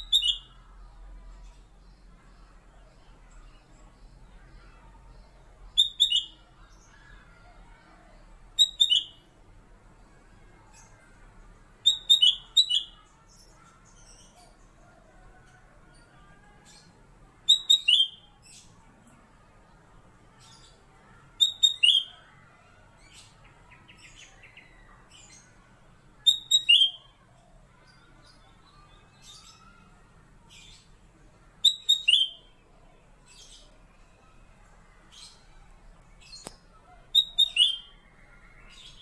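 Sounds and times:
bulbul singing whistled phrases: 0.0 - 0.6, 5.7 - 6.4, 8.6 - 9.3, 11.8 - 13.1, 17.5 - 18.3, 21.4 - 22.2, 26.2 - 27.1, 31.6 - 32.5, 37.1 - 38.0
faint bird chirps: 0.0 - 9.4, 10.0 - 18.8, 20.4 - 39.0.

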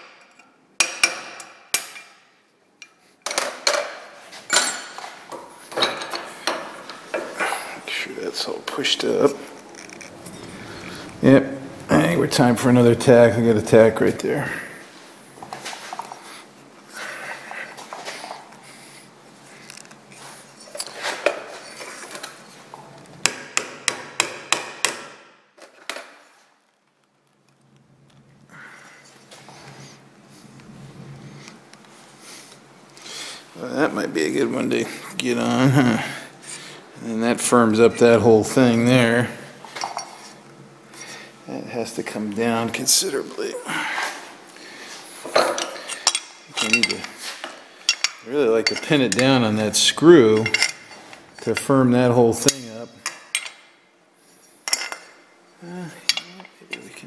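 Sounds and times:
hammer striking metal punch: 23.2 - 25.3
metal parts clattering: 45.4 - 47.1.

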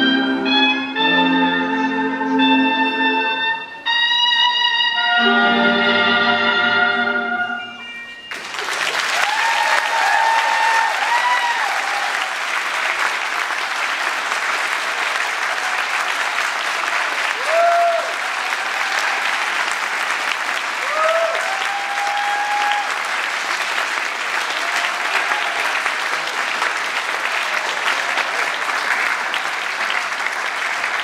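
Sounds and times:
swing band music: 0.0 - 8.0
audience applause and cheers: 8.3 - 31.0.

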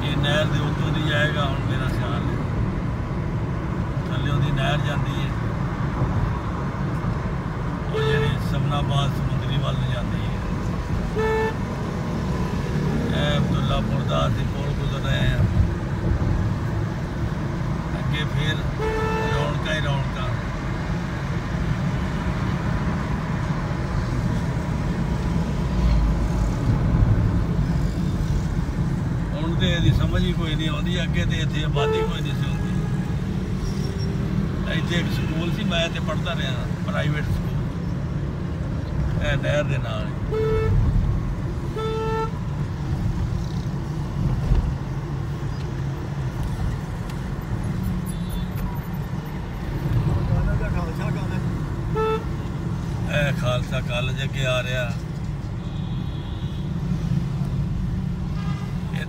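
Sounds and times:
road and engine rumble in car: 0.0 - 59.0
vehicle horn toot: 7.9 - 8.4, 11.2 - 11.6, 18.8 - 19.6, 31.8 - 32.9, 40.3 - 40.8, 41.7 - 42.4, 51.9 - 52.4, 55.6 - 56.7, 58.4 - 58.8.

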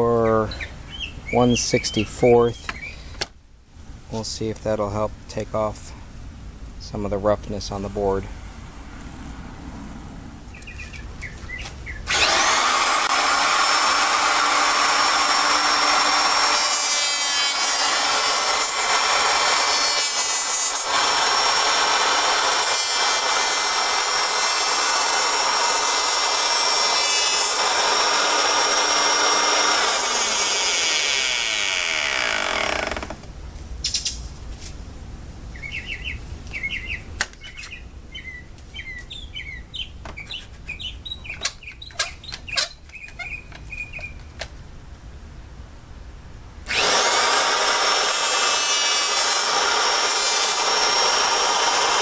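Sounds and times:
electric planer whining: 12.1 - 33.1, 46.7 - 52.0.

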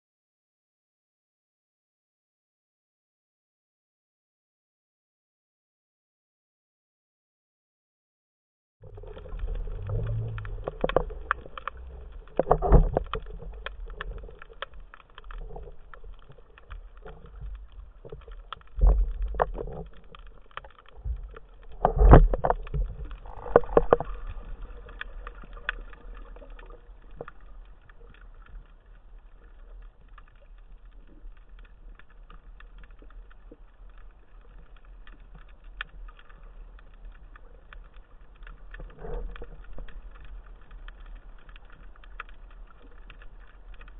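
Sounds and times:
muffled underwater movement: 8.8 - 43.9.

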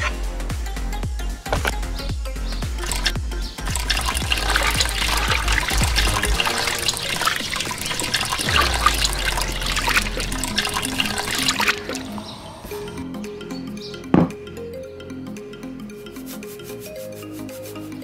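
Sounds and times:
background music: 0.0 - 18.0
water pouring and splashing into tub: 2.8 - 12.2.

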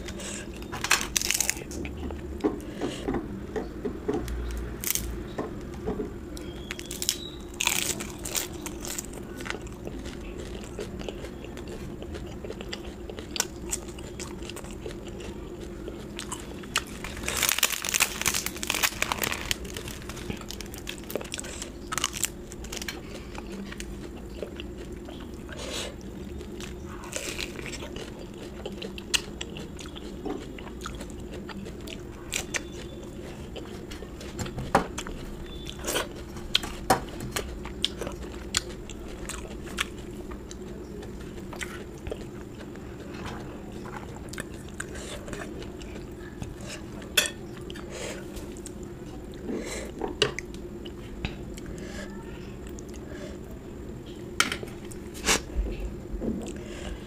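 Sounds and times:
crunchy bites: 0.0 - 1.7, 4.8 - 5.2, 6.4 - 25.1
wet chewing: 6.4 - 51.8.

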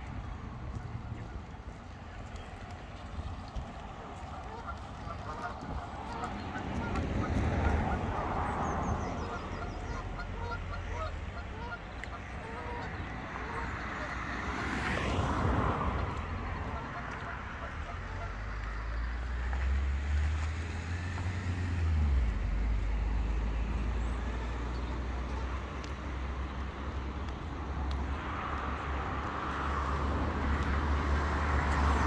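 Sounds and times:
road traffic rumble: 0.0 - 32.0
ducks quacking: 0.6 - 19.0
geese honking: 3.1 - 19.0, 24.2 - 26.3.

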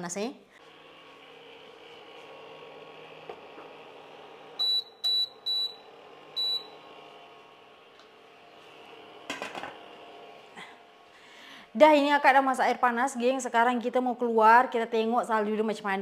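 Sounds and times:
short high beeps: 4.6 - 5.8.

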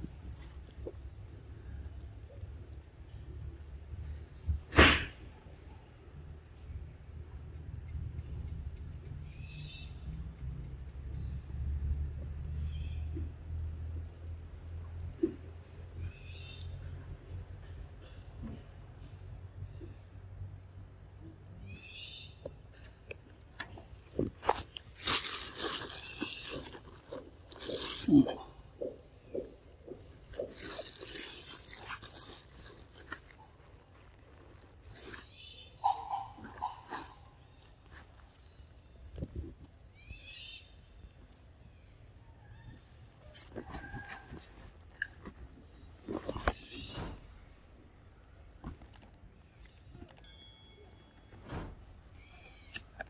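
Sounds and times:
high insect whine: 0.0 - 44.8
bird chirping: 34.6 - 44.4.

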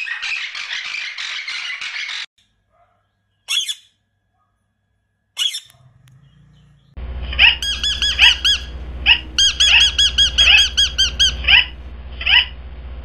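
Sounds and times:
parakeet calling: 3.5 - 3.9, 5.4 - 12.5
clear chirping notes: 5.4 - 11.8
steady low hum: 5.8 - 13.0.

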